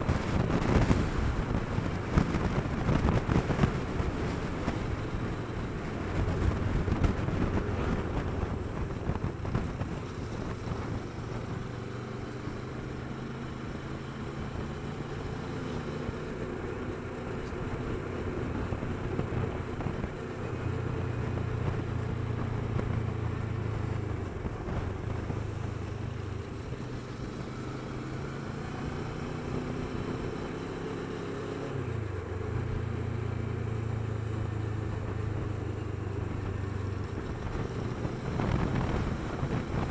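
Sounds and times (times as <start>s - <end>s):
wind noise on microphone: 0.0s - 11.9s, 17.6s - 27.0s, 34.9s - 39.9s
motorcycle engine running: 0.0s - 39.9s.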